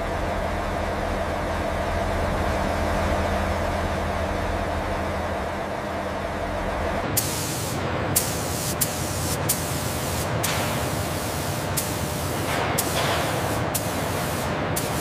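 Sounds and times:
low machine hum: 0:00.0 - 0:15.0
paint spray gun hissing: 0:07.2 - 0:15.0.

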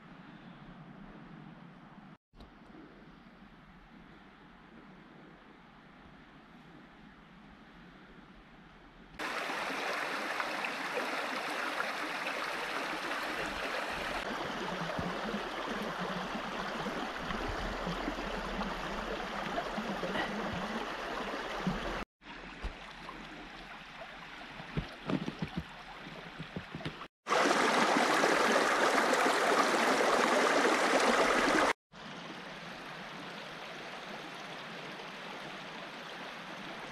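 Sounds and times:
brook babbling: 0:09.2 - 0:36.9.

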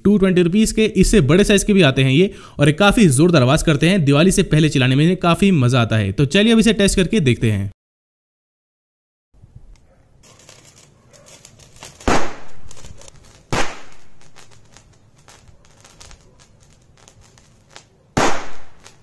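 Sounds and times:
firecracker bangs: 0:11.8 - 0:19.0.

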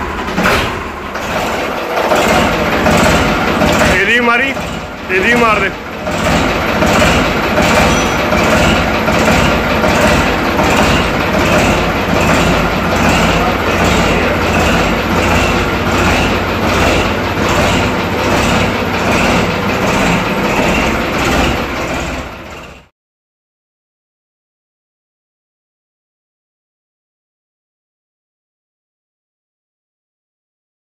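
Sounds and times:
tractor diesel engine running: 0:00.0 - 0:22.9.

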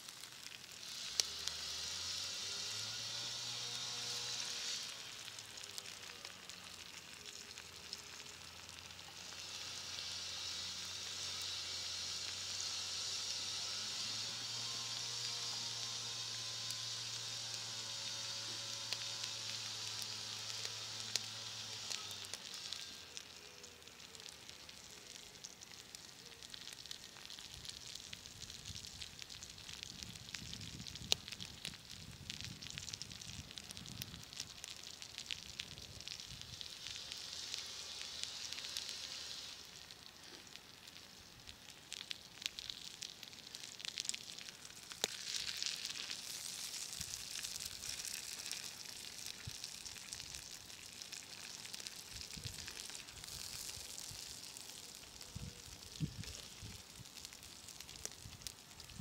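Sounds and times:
food sizzling in a frying pan: 0:00.0 - 0:59.0.

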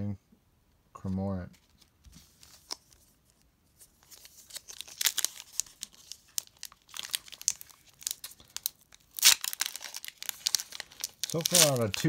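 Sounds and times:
foil wrapper crinkling and tearing: 0:04.0 - 0:12.0.

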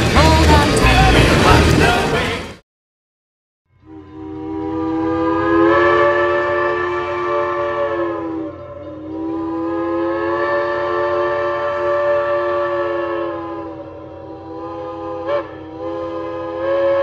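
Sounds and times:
steam locomotive chime whistle: 0:03.7 - 0:17.0.

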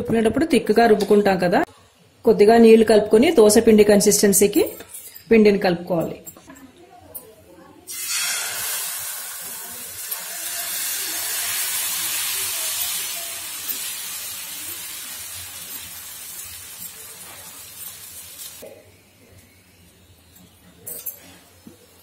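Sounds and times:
batter sizzling on hot pan: 0:07.9 - 0:18.6.

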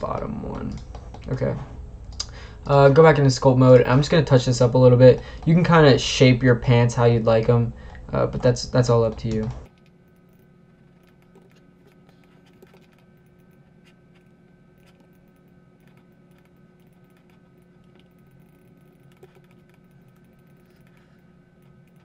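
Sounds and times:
steady low hum: 0:00.0 - 0:22.0
computer mouse clicks: 0:07.9 - 0:22.0.

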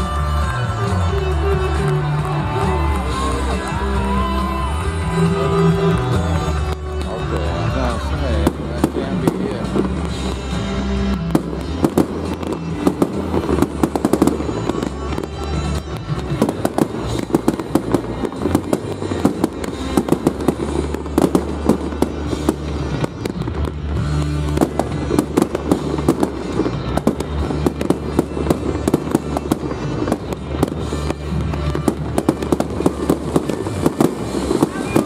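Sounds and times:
fireworks bangs and crackles: 0:00.0 - 0:35.0
music with bass line: 0:00.0 - 0:35.0.

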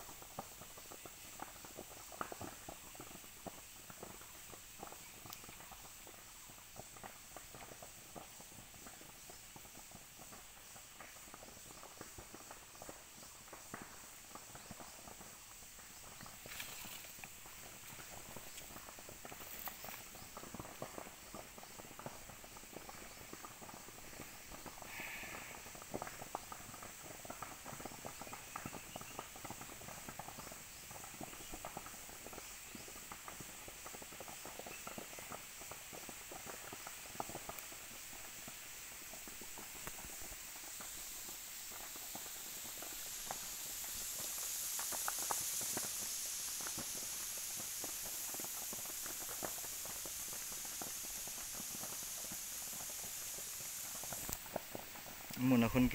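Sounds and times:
fire crackling and snapping: 0:00.0 - 0:55.9
steady high hiss: 0:00.0 - 0:55.9.

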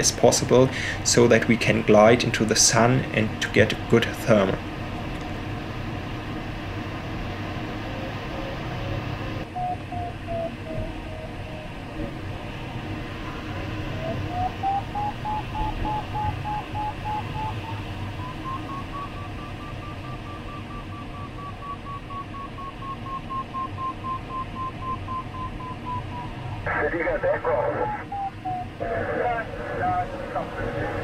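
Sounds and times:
variometer beeping: 0:09.3 - 0:28.9.

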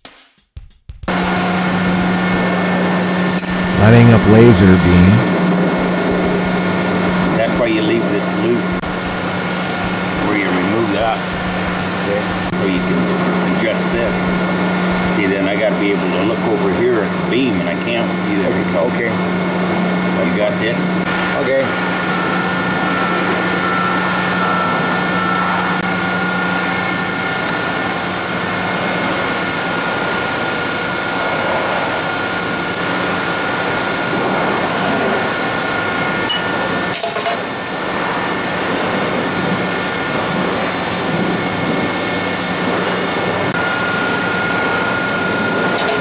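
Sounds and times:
high whine: 0:01.1 - 0:14.6.

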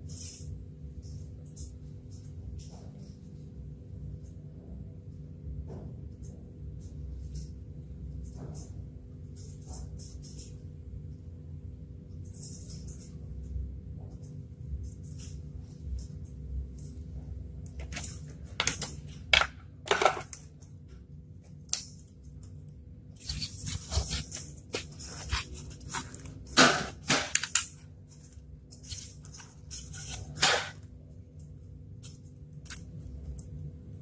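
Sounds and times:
styrofoam scraping and crunching: 0:23.2 - 0:27.6.

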